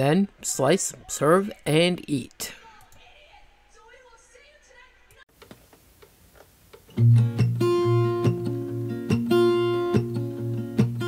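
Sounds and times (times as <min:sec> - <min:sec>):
strummed guitar music: 0:06.9 - 0:11.0.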